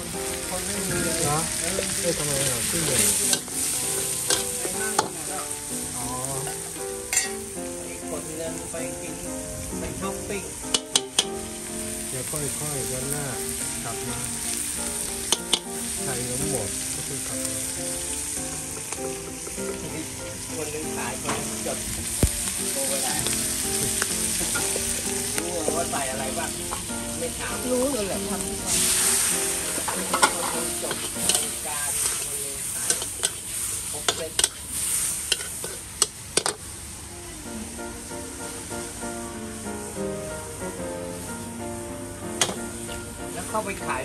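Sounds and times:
seafood sizzling in hot oil: 0.0 - 44.0
metal spatula scraping wok: 28.7 - 36.0.

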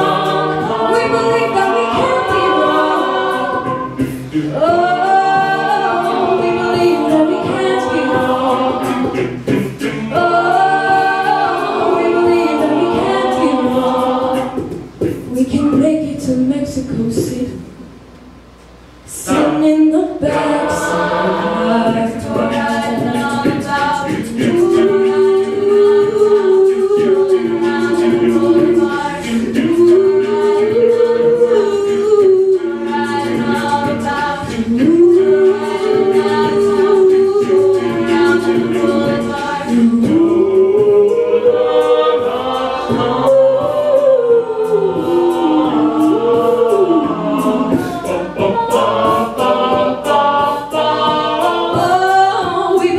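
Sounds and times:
woman singing lead: 0.0 - 9.1, 15.3 - 17.7, 51.5 - 52.9
beatboxing: 0.0 - 17.8, 19.1 - 52.9
backing vocal harmonies: 0.0 - 52.9.

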